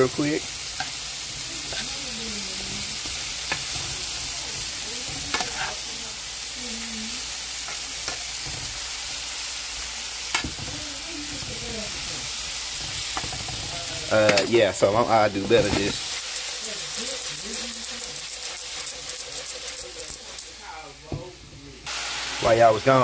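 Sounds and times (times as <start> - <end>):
vegetables sizzling in oil: 0.0 - 23.0
utensil scraping and knocking pan: 2.7 - 5.8, 10.3 - 20.4.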